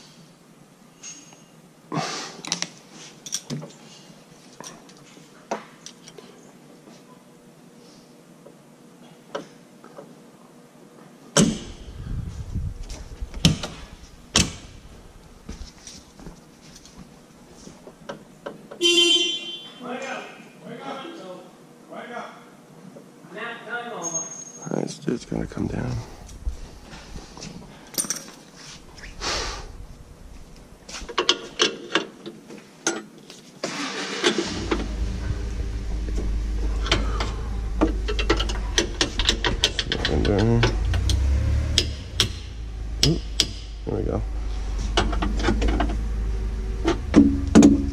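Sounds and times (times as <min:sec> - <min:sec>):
diesel engine cranking and starting: 0:11.4 - 0:15.6, 0:29.1 - 0:31.6, 0:33.6 - 0:47.9
diesel engine idling: 0:11.6 - 0:15.6, 0:34.4 - 0:47.9
clicks and knocks: 0:36.1 - 0:43.8, 0:46.8 - 0:47.9.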